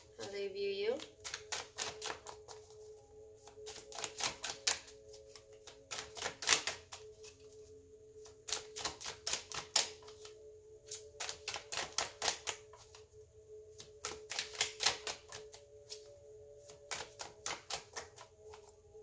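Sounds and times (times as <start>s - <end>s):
soft steady background tone: 0.0s - 19.0s
cards being shuffled: 1.0s - 7.6s, 8.2s - 13.0s, 13.7s - 18.7s.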